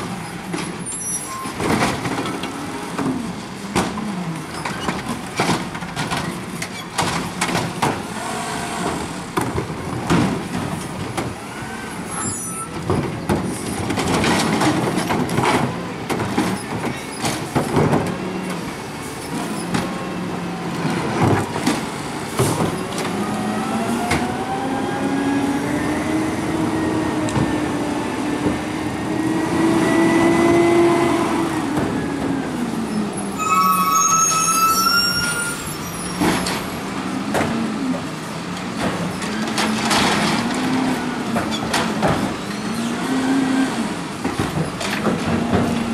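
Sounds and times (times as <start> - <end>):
carts knocking and clattering: 1.4 - 8.0, 12.7 - 18.6, 20.8 - 23.2, 37.3 - 43.0, 44.0 - 45.9
high squeal: 33.3 - 36.2.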